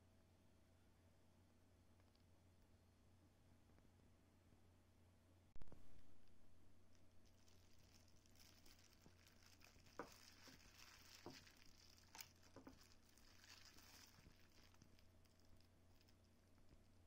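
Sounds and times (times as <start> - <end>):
plastic glove crinkling: 6.8 - 17.0
wet tearing of cooked chicken: 7.2 - 16.2.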